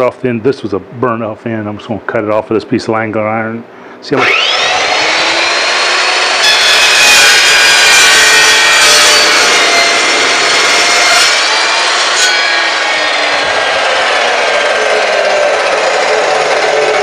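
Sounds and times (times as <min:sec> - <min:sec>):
chop saw cutting steel: 0:04.2 - 0:17.0.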